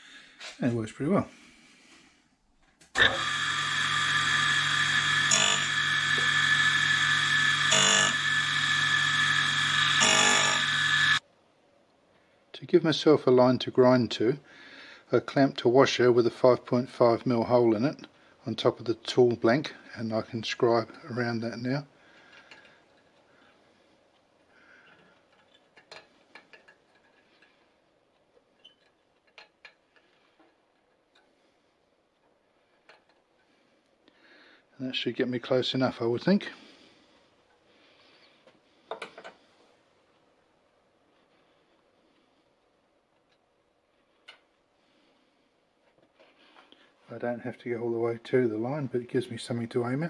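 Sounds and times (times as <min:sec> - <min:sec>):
milling machine humming and whining: 0:03.0 - 0:11.2.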